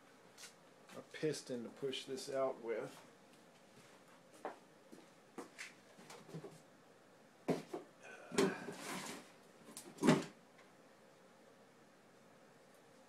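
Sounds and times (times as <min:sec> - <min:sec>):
rustling and scraping: 0:08.4 - 0:10.3.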